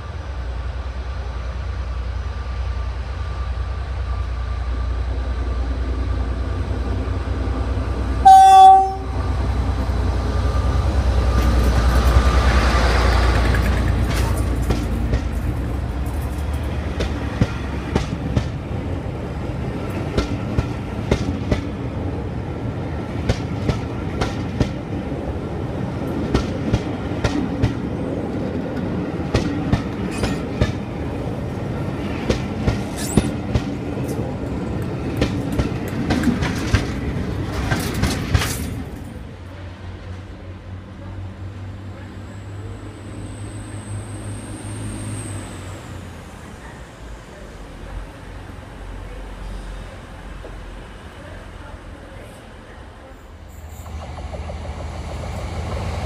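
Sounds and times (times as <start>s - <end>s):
locomotive horn blast: 8.2s - 9.3s
train wheels clicking over rail joints: 9.8s - 18.6s, 29.2s - 30.9s, 32.2s - 39.2s, 53.6s - 56.0s.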